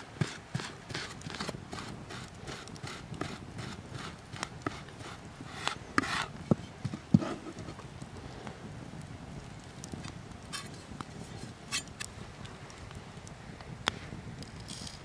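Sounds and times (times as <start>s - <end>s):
knife scraping across board: 2.9s - 7.8s, 11.4s - 11.9s.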